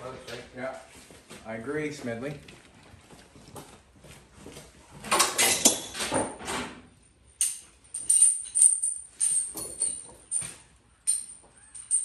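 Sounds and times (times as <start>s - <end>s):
steel chain clinking and jingling: 7.0s - 12.0s.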